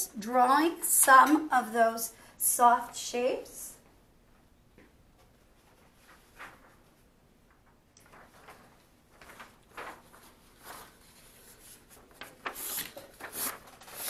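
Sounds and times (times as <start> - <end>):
paper rustling: 5.2 - 14.0.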